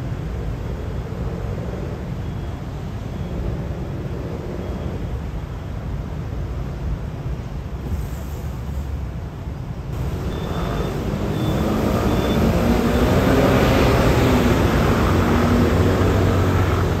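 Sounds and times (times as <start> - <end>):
bus engine driving past: 9.9 - 17.0
motor scooters passing: 10.0 - 17.0.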